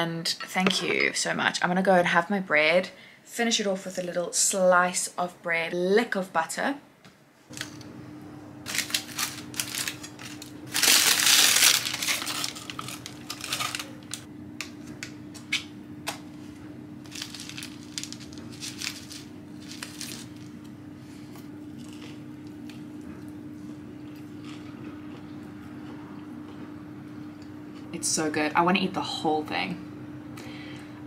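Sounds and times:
steady low hum: 0:07.5 - 0:31.0
baking paper crinkling: 0:08.7 - 0:14.3, 0:17.0 - 0:20.7.

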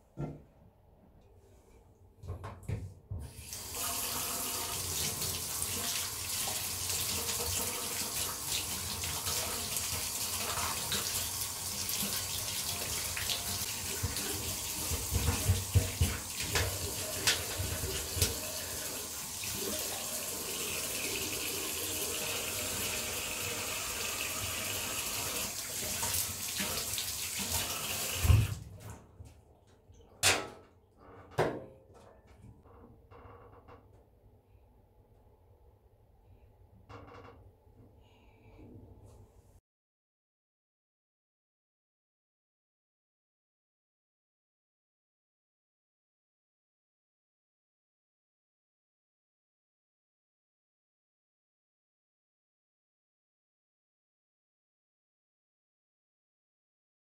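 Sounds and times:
tap water running into drain: 0:03.2 - 0:28.6
drain scrubbing: 0:03.6 - 0:28.7.

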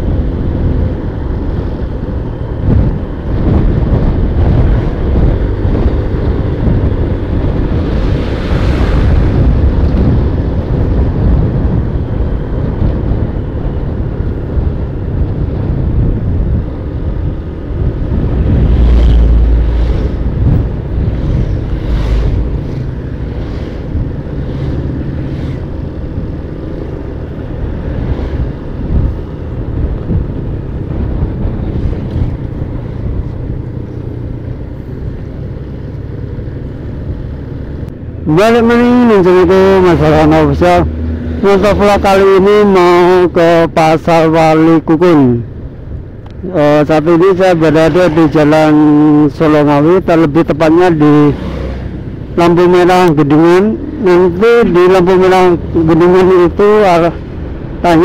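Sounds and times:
wind buffeting microphone: 0:00.0 - 0:42.3.

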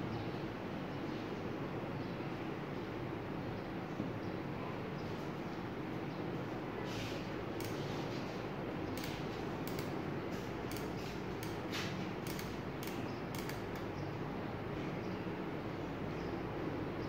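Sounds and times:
steady background noise: 0:00.0 - 0:17.0
soldering gun clicks and crackles: 0:07.6 - 0:08.2, 0:08.8 - 0:14.0.

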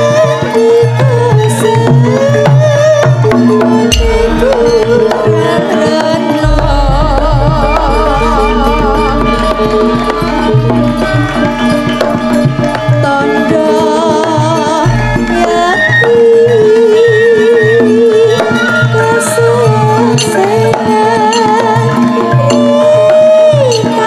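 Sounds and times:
woman singing with vibrato: 0:00.0 - 0:11.7, 0:12.4 - 0:24.0
gamelan accompaniment: 0:00.0 - 0:24.0
hand drumming: 0:02.2 - 0:17.0
deep sustained bass: 0:03.9 - 0:12.8.

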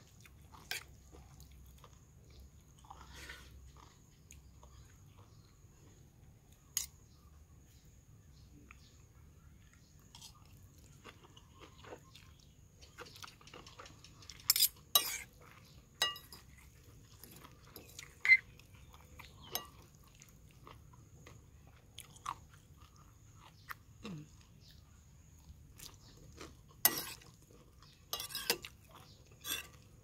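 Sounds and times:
soft chewing: 0:00.0 - 0:30.0
spoon and fork clinking on bowl: 0:14.5 - 0:15.3, 0:16.0 - 0:16.6, 0:26.9 - 0:27.3, 0:28.1 - 0:28.8, 0:29.4 - 0:29.9.

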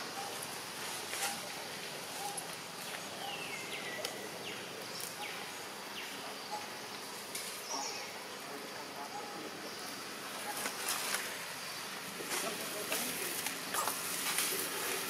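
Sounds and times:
insects hissing: 0:00.0 - 0:15.0.

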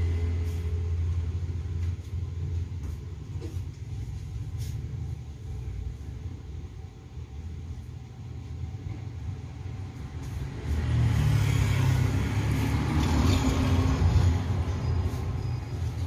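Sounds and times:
vehicle engine rumble passing: 0:00.0 - 0:02.6, 0:08.7 - 0:16.0.

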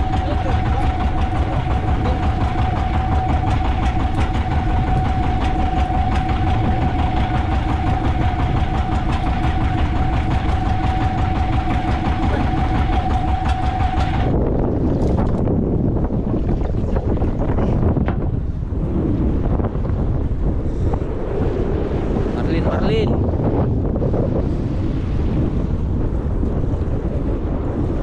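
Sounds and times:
boat engine running: 0:00.0 - 0:28.0
constant whine: 0:00.0 - 0:28.0
wind: 0:00.0 - 0:28.0.

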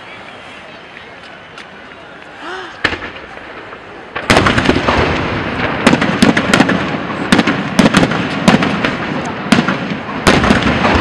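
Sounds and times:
fireworks crackling: 0:00.0 - 0:11.0
fireworks bangs: 0:02.7 - 0:11.0.

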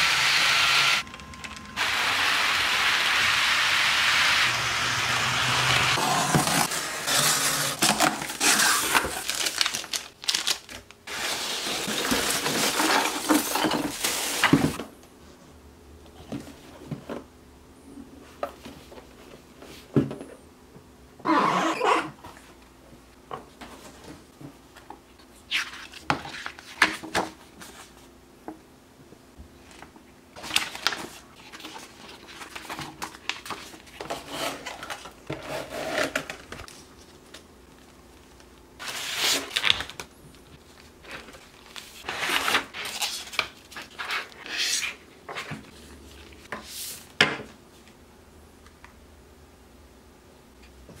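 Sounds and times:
plastic packaging crinkling: 0:06.5 - 0:14.4.

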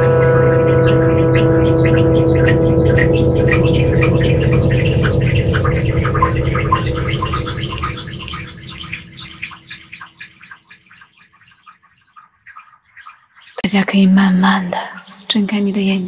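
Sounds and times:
plucked string instrument ringing: 0:00.0 - 0:09.5
high tinkling ticks: 0:00.0 - 0:14.0.

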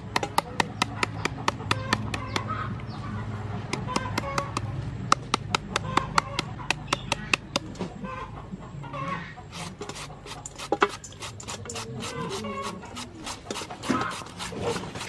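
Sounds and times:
peeler scraping mango: 0:00.0 - 0:02.8, 0:03.7 - 0:07.8, 0:09.5 - 0:15.0
clucking calls: 0:00.2 - 0:10.5, 0:11.7 - 0:14.4
knife tapping into mango: 0:03.7 - 0:07.7.

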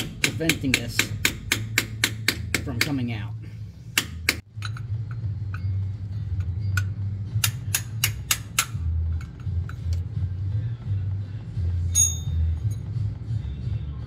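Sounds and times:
steady low hum: 0:00.0 - 0:14.0
metal tool clicks and taps: 0:06.7 - 0:10.0.

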